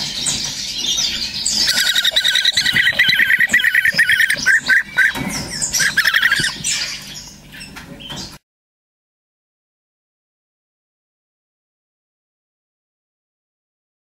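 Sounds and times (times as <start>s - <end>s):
nestlings trilling chirps: 0.0s - 8.4s.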